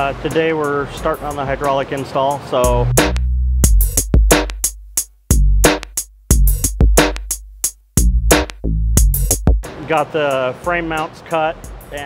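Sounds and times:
deep bass notes: 2.6 - 9.7
drum machine beat: 2.6 - 9.8, 10.6 - 11.0, 11.6 - 12.0.

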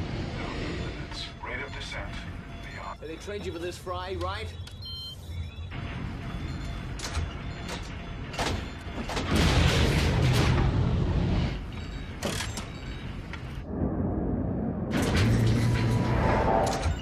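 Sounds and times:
low rumble: 13.6 - 17.0.

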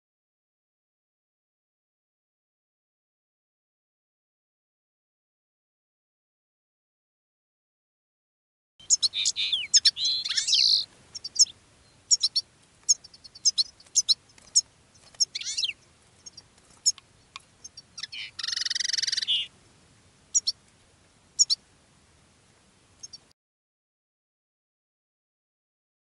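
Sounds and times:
buzzy twittering birdsong: 8.8 - 19.5, 20.3 - 20.6, 21.4 - 21.6, 23.0 - 23.3
birds chirping: 8.8 - 19.6, 20.3 - 21.7, 23.0 - 23.3.

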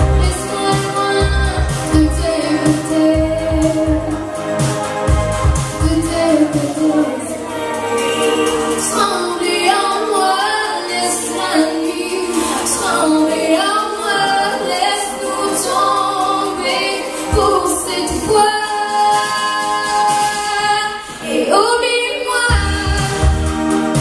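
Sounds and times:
woman singing into a microphone: 0.0 - 4.3, 5.8 - 23.4.

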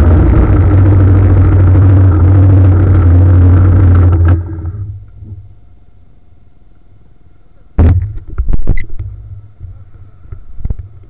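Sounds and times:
motorcycle riding rumble: 0.0 - 5.6
heavy thump with knocks and rattles: 7.8 - 9.8.

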